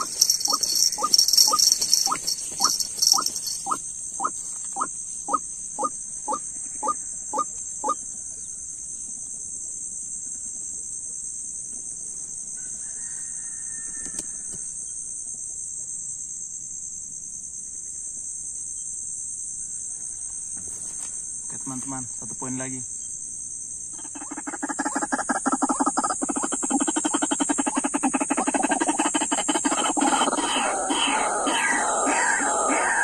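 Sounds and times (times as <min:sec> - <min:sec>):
bird calling loud notes: 0:00.0 - 0:08.0, 0:27.8 - 0:33.0
high-pitched insect buzz: 0:00.0 - 0:08.0, 0:21.8 - 0:33.0.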